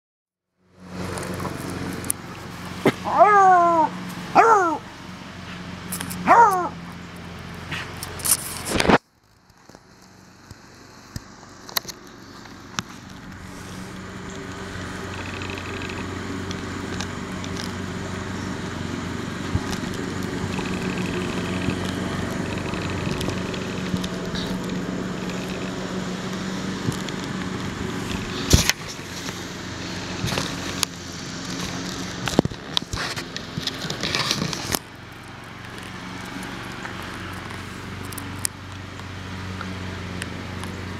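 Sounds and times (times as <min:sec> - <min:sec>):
dry leaves crackling: 0:00.7 - 0:40.9
dog yowling: 0:03.0 - 0:04.9, 0:06.2 - 0:06.8
low hum: 0:10.0 - 0:40.9.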